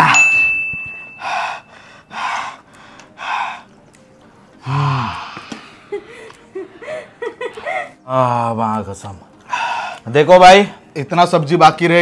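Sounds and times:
man breathing hard: 1.1s - 3.7s
man sighing aah: 4.6s - 5.5s.

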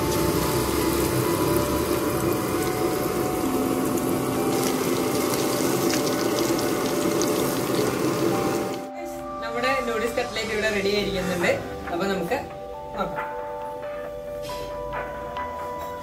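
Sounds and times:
food deep-frying in oil: 0.0s - 8.9s.

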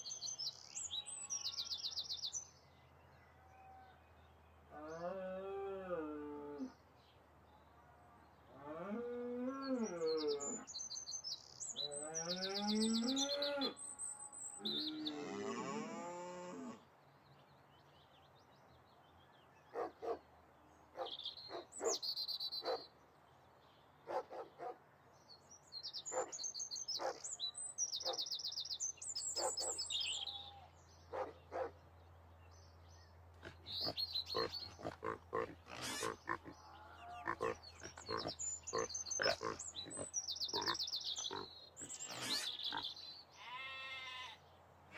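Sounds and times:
birds chirping: 17.3s - 44.6s.

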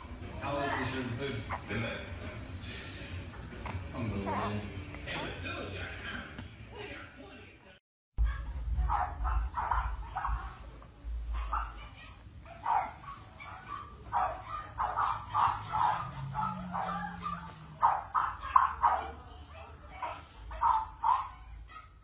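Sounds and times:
puppies yipping and whimpering: 14.8s - 18.8s.

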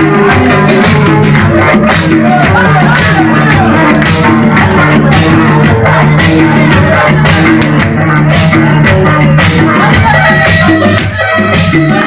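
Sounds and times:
loud dance music: 0.0s - 12.0s.

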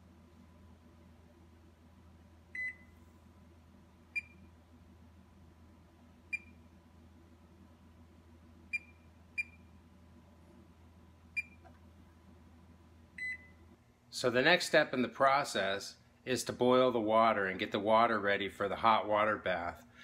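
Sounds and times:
oven control panel beeps: 2.5s - 3.0s, 4.2s - 4.5s, 6.3s - 6.6s, 8.7s - 9.7s, 11.4s - 11.7s, 13.2s - 13.6s.

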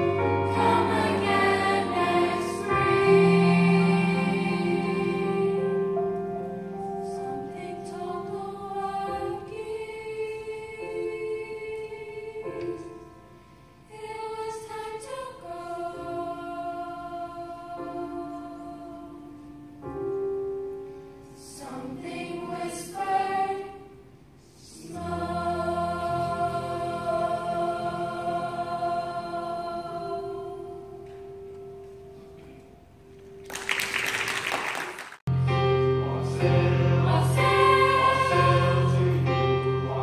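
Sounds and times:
school choir singing: 0.0s - 6.2s, 6.8s - 13.0s, 13.8s - 19.5s, 21.4s - 31.2s, 36.0s - 40.0s.

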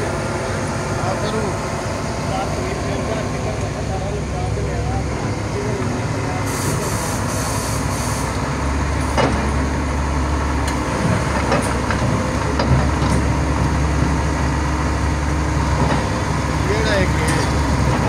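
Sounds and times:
excavator diesel engine under load: 0.0s - 18.0s
hiss: 6.4s - 8.4s.

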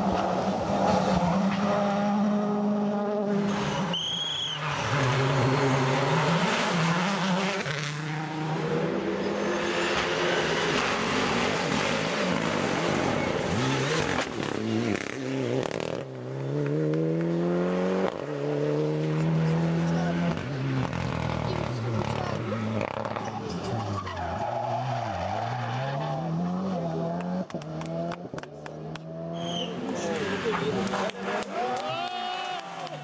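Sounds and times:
rally car engines revving: 0.0s - 33.0s.

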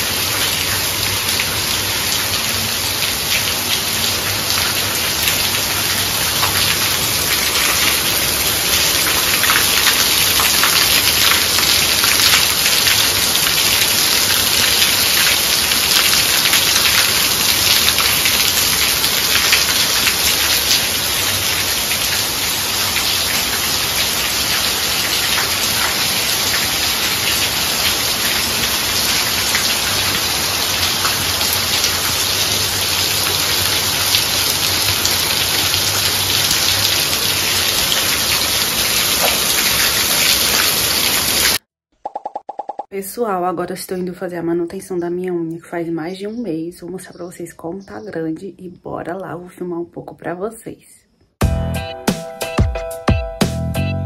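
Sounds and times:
water streaming off roof: 0.0s - 41.6s.

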